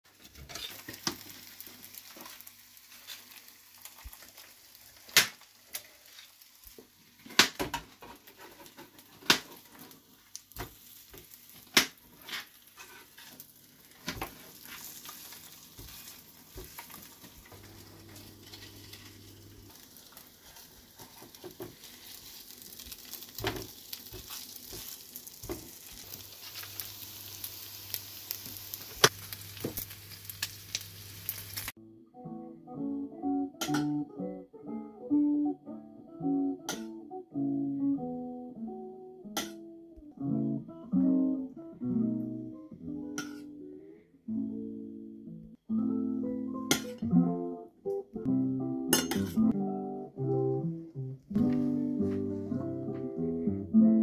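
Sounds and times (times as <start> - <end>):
bacon sizzling in frying pan: 0.3 - 31.8
kitchen utensils clicking: 49.0 - 49.5.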